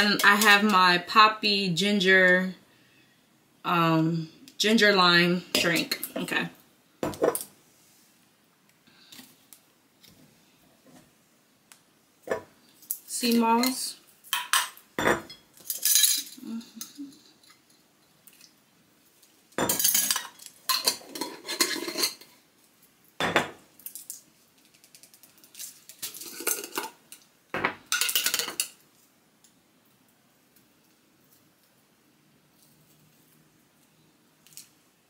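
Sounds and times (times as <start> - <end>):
glass jar and spoon clinking: 19.6 - 22.2.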